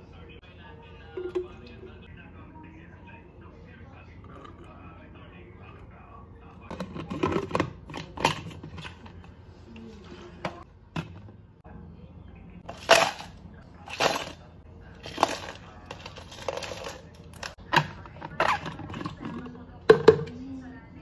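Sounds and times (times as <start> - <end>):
ice cubes clattering into cup: 15.0 - 17.5
plastic containers knocking: 17.7 - 20.4.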